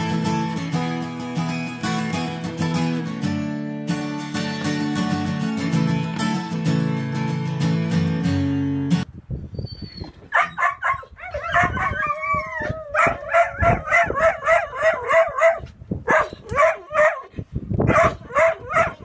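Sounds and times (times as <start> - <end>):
dog yelping barks: 10.0 - 19.0
dog howling: 10.4 - 15.6.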